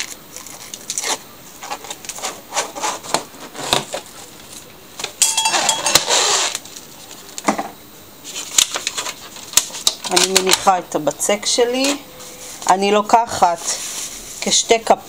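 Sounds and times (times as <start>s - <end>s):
cling film crinkling: 0.0s - 4.7s.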